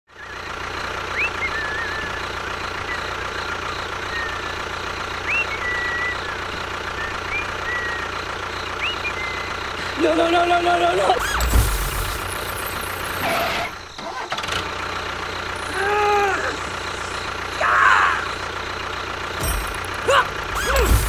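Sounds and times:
whistled chirps: 0.1s - 10.0s
small engine idling: 0.1s - 21.0s.

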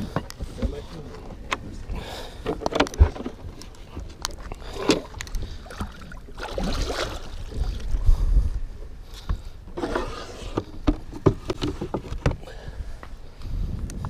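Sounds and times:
wooden board knocks and scrapes: 9.2s - 12.4s.

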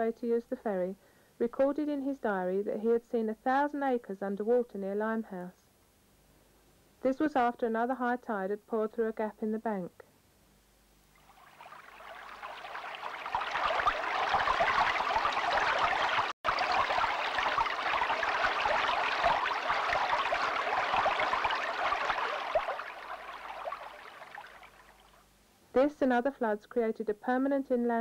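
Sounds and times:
rushing churning water: 11.2s - 25.2s.

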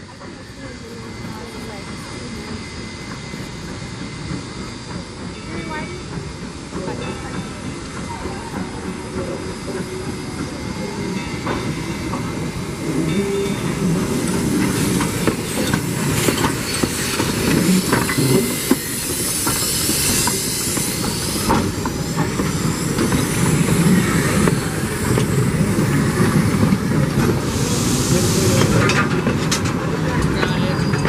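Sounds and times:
steam train rumbling past: 0.0s - 31.0s
wheels clanking over rail joints: 4.4s - 27.7s.

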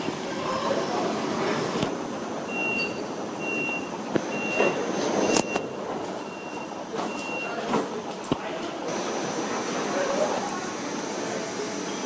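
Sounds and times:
station background noise: 0.0s - 12.0s
short high warning beeps: 2.5s - 7.6s.

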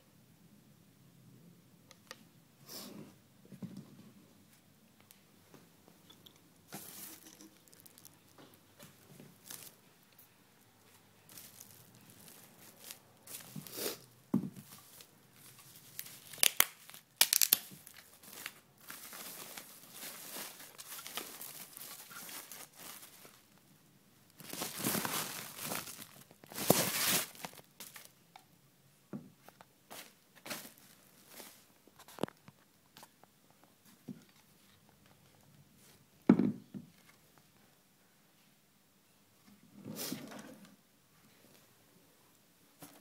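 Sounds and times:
plastic packing wrap rustling: 6.7s - 13.7s, 14.6s - 23.6s, 24.3s - 28.1s, 29.9s - 32.4s.

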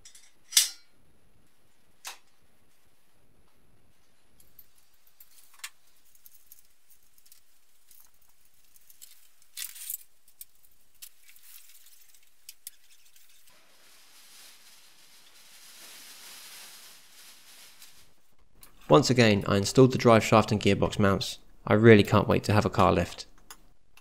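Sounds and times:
fabric strap rustling: 4.6s - 18.4s.

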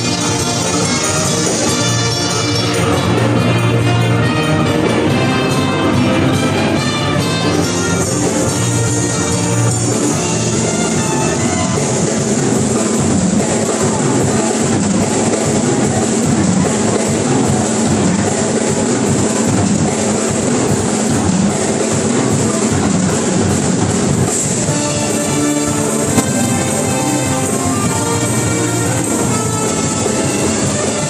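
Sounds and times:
saxophones: 0.0s - 16.2s, 24.7s - 31.0s
live band playing: 0.0s - 31.0s
drum kit beat: 24.6s - 29.3s.

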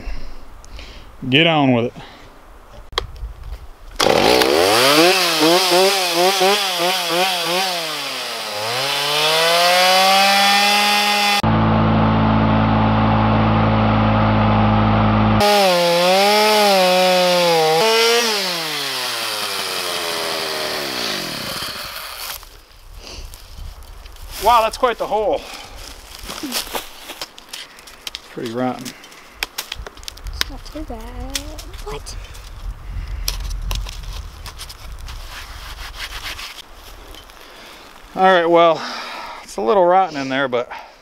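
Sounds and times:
chainsaw revving and cutting wood: 4.0s - 22.5s.

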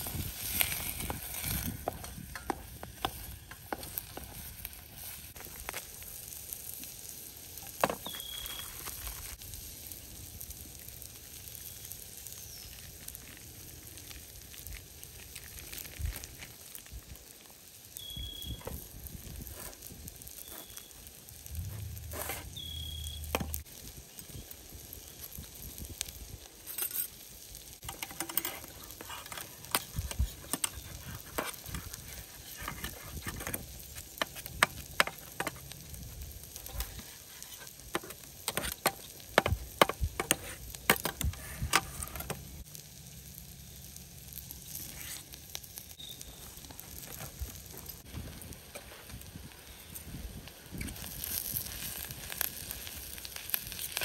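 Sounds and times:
wood fire crackling: 0.0s - 54.0s
sharp pops of fire: 18.0s - 42.7s.

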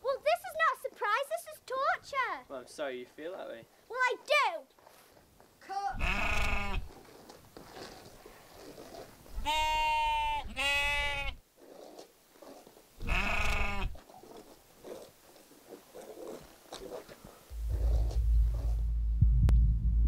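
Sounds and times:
sheep bleating: 5.9s - 6.9s, 9.4s - 11.4s, 13.0s - 14.0s.

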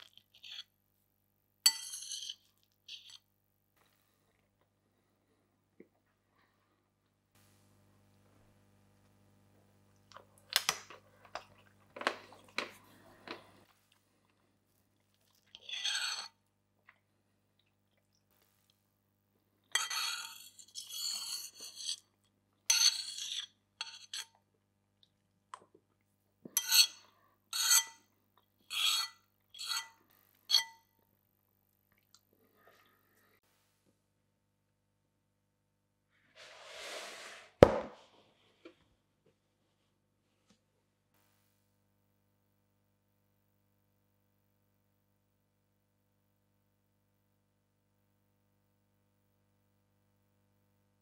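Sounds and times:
fork scraping plate: 0.0s - 0.7s, 1.7s - 3.2s, 15.6s - 16.4s, 19.8s - 22.1s, 22.7s - 24.3s, 26.6s - 28.0s, 28.7s - 30.8s
fork clinking on plate: 1.7s - 3.2s.

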